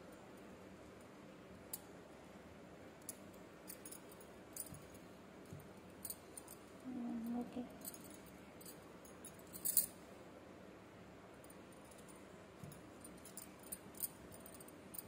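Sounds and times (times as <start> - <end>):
glass bangles clinking: 5.8 - 10.0, 11.4 - 15.0.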